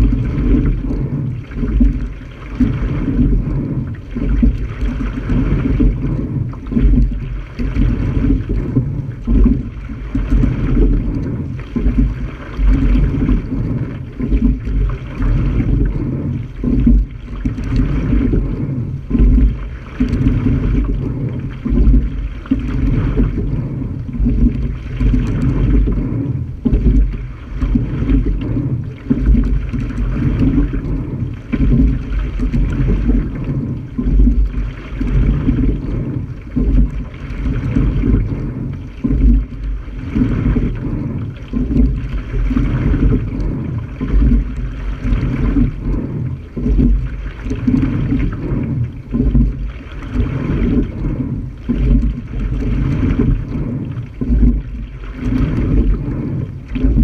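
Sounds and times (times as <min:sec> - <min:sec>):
water rushing along a hull: 0:00.0 - 0:57.0
wind rumble on microphone: 0:00.0 - 0:57.0.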